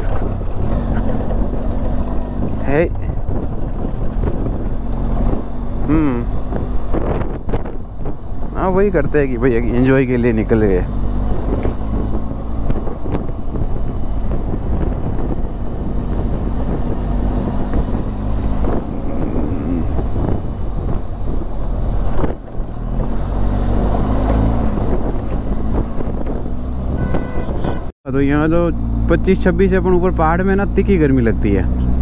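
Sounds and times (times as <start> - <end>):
road rumble: 0.0 - 32.0
vehicle engine running: 0.0 - 32.0
sharp knocks from rough road: 20.2 - 27.9.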